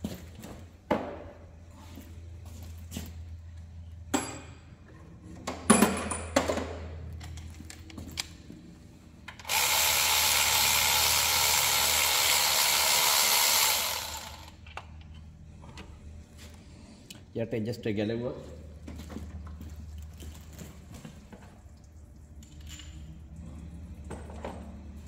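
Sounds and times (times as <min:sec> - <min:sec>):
power tool running: 0:09.4 - 0:14.6.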